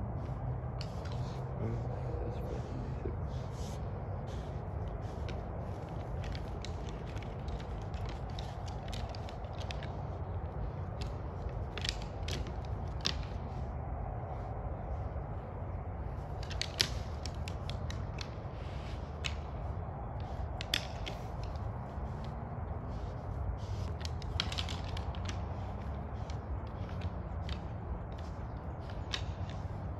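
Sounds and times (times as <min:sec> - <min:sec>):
low background rumble: 0:00.0 - 0:29.9
antlers clacking together: 0:20.2 - 0:29.9.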